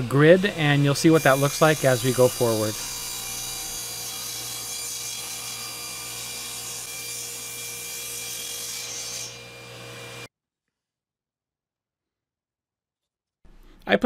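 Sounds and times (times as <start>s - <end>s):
power saw cutting plywood: 0.0s - 10.3s.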